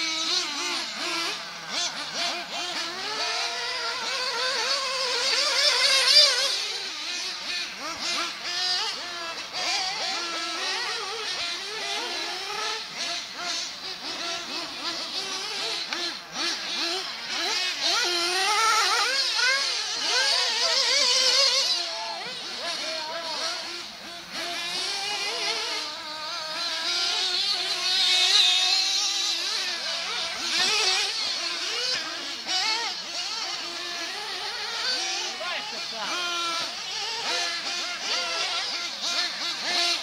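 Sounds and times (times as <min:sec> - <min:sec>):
high-pitched model car engines: 0:00.0 - 0:40.0.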